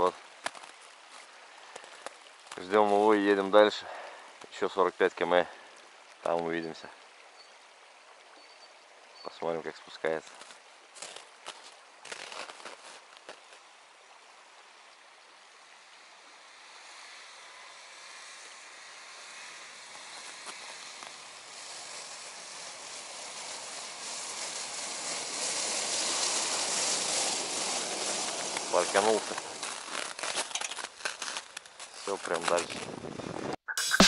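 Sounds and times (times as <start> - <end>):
vehicle engine and tyres on snow: 10.2 - 33.6.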